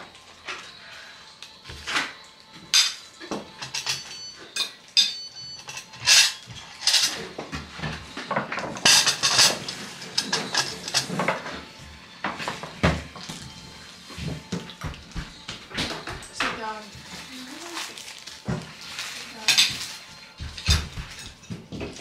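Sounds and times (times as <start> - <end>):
cutlery and dishes clinking: 1.5 - 13.6, 14.2 - 22.0.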